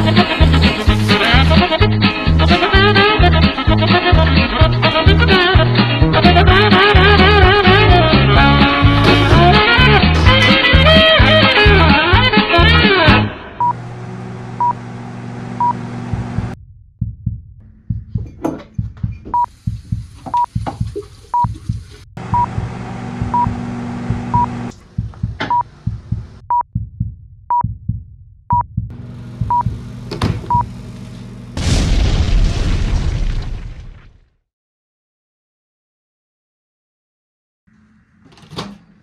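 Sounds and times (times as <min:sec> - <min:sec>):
handling knocks and clatters: 0:18.0 - 0:19.4
countdown timer beeping: 0:22.3 - 0:22.6, 0:26.4 - 0:27.8
loud explosion: 0:31.6 - 0:34.3.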